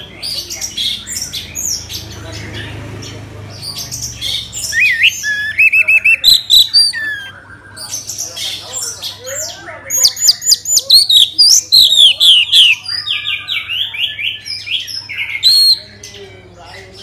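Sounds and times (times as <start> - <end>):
thrush singing whistled phrases: 4.6 - 8.0.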